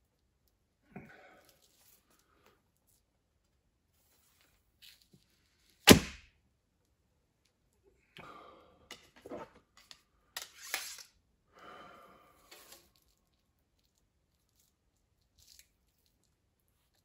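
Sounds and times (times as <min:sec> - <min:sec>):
arrows rustling and clacking: 0:09.0 - 0:11.2.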